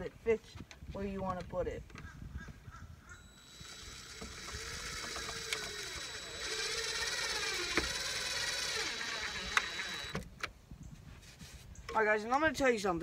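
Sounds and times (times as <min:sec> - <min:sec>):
cordless drill driving a screw: 0:03.1 - 0:10.3.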